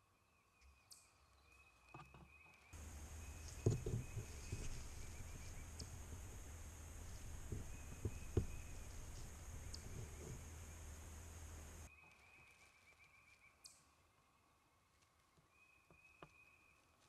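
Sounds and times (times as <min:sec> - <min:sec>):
camera handling knocks and rubs: 0:02.8 - 0:11.9
steady low rumble: 0:02.8 - 0:11.9
faint high whine: 0:02.8 - 0:12.5.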